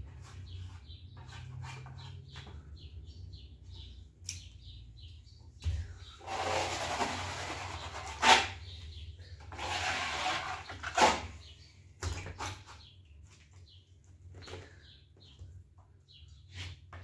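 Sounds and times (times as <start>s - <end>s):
trowel scraping plastered wall: 0.1s - 2.4s, 6.2s - 8.7s, 9.5s - 11.4s.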